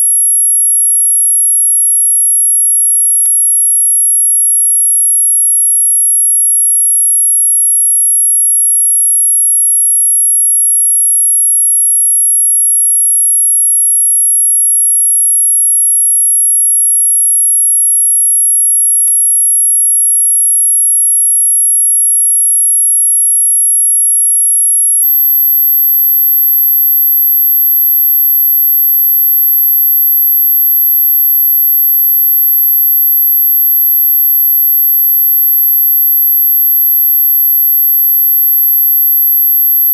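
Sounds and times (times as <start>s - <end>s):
high-pitched electronic whistle: 25.0s - 39.9s.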